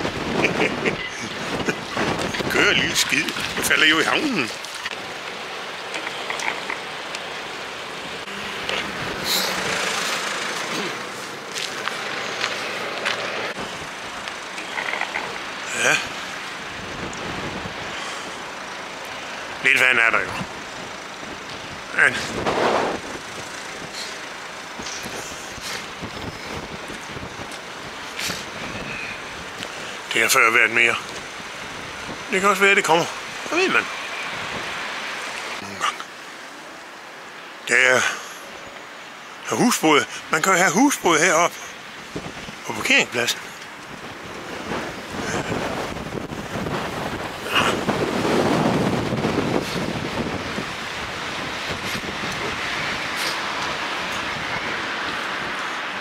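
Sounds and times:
wind on microphone: 0.0 - 3.8, 16.0 - 18.0, 20.3 - 24.0, 24.8 - 30.0, 42.0 - 42.6, 43.8 - 55.8
water washing: 0.0 - 30.1, 39.9 - 56.0
steady rushing noise: 0.0 - 56.0.

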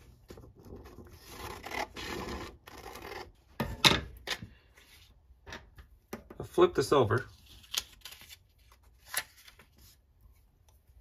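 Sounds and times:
paper rustling: 7.3 - 10.5.

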